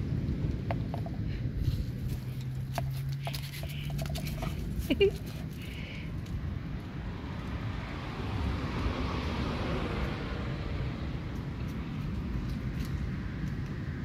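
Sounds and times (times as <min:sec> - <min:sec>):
passing vehicle rumble: 0:00.0 - 0:14.0.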